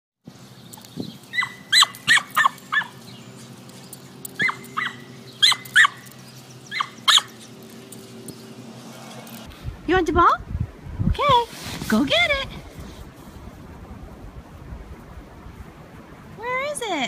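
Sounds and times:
small dog yapping: 1.3 - 3.0, 4.4 - 7.5.

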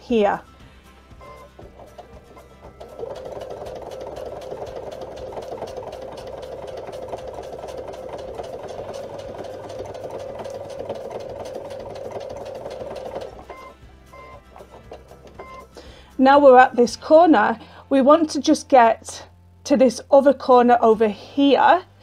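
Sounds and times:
sewing machine stitching: 1.2 - 15.8.

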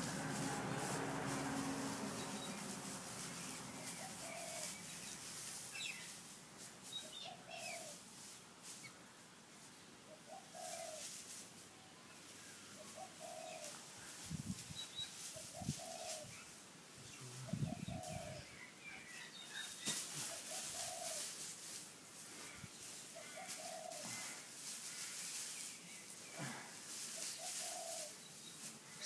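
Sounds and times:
dry straw rustling: 0.0 - 29.0
dove cooing: 3.8 - 4.8, 10.1 - 11.0, 12.8 - 13.8, 15.3 - 16.4, 17.2 - 18.4, 19.9 - 21.3, 23.2 - 24.4, 27.2 - 28.2.

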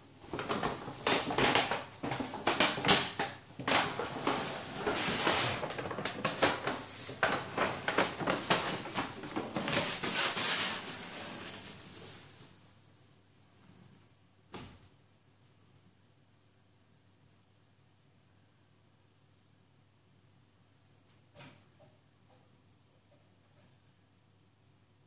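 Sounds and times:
paper bag rustling: 0.2 - 12.5.

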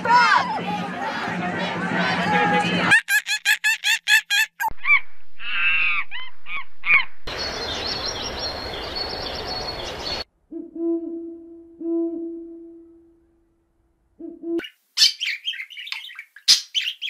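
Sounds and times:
higher arching animal calls: 3.3 - 7.1.

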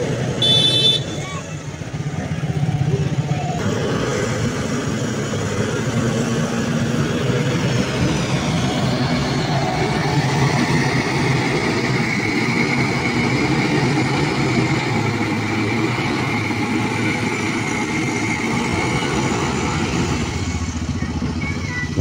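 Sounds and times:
diesel engine under load: 0.0 - 22.0.

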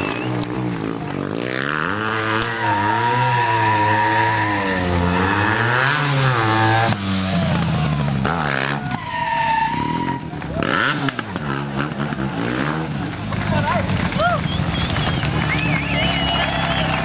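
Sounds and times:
motorcycle engine revving: 0.0 - 17.0
tyre squealing: 2.2 - 6.8, 8.4 - 10.9.

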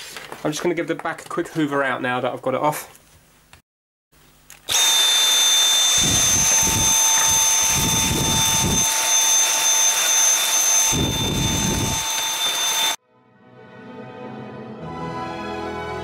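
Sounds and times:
handheld vacuum cleaner running: 4.7 - 13.0.

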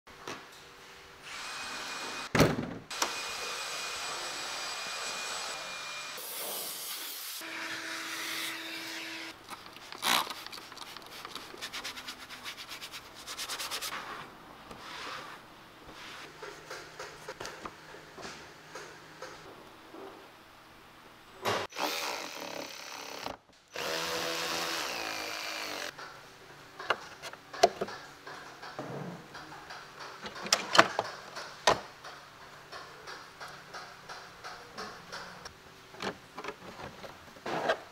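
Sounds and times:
vacuum cleaner whine: 2.9 - 6.5.

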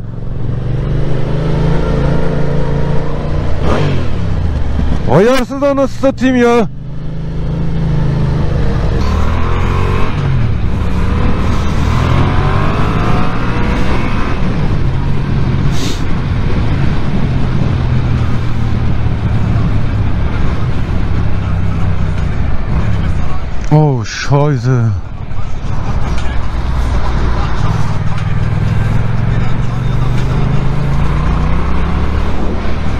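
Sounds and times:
motorcycle engine accelerating: 0.0 - 5.1, 6.7 - 23.4, 25.3 - 32.9
wind noise on microphone: 10.0 - 23.2.

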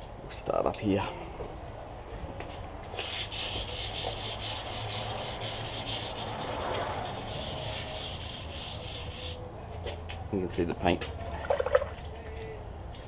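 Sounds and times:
hand sanding with sandpaper: 2.9 - 9.4.

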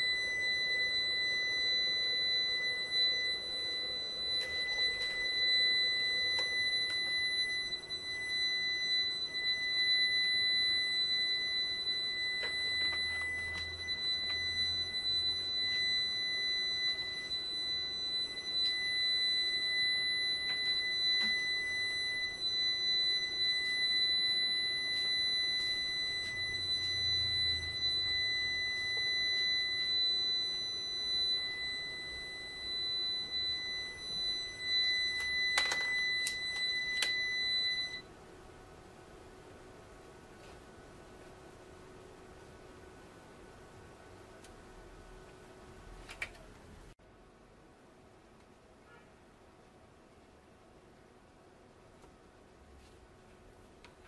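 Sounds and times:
high-pitched electronic tone: 0.0 - 38.0.

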